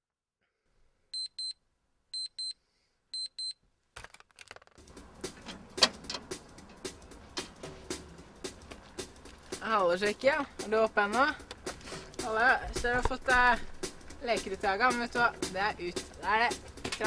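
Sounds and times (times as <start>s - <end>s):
alarm clock beeping: 1.2s - 1.5s, 2.2s - 2.6s, 3.2s - 3.6s.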